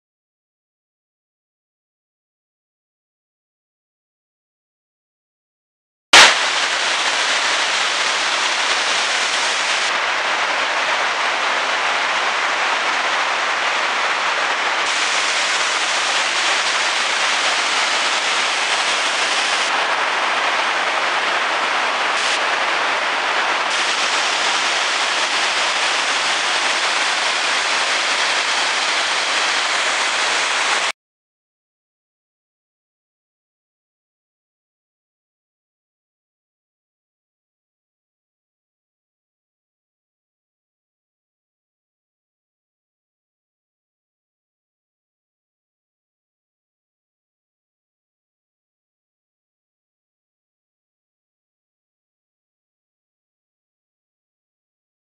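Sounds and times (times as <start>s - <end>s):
water rushing over dam: 6.2s - 30.9s.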